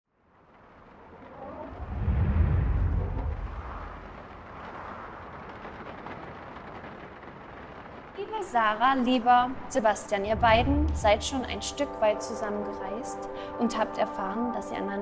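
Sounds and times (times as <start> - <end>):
deep low rumble: 1.4 - 5.3, 10.2 - 11.8.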